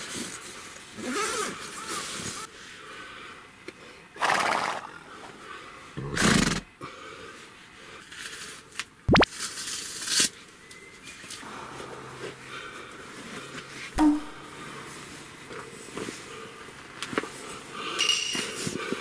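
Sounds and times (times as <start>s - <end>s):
horse-like whinny: 4.2s - 5.0s, 6.0s - 6.6s
sharp falling tone: 14.0s - 14.4s.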